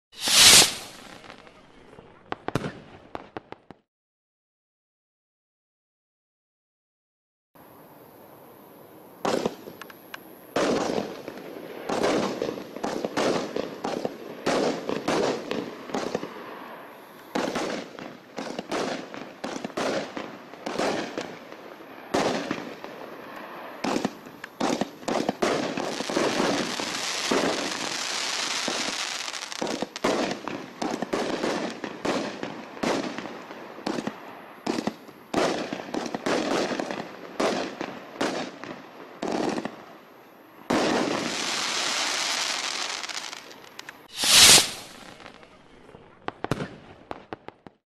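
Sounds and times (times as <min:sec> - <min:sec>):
firework launch thumps and bursts: 0:00.1 - 0:01.2, 0:44.1 - 0:45.2
firework crackling: 0:00.1 - 0:03.7, 0:09.3 - 0:47.8.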